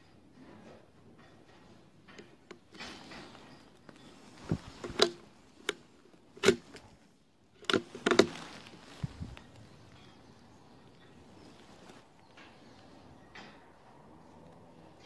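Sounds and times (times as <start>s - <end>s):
rifle bolt clicking: 4.8s - 5.8s, 6.4s - 6.7s.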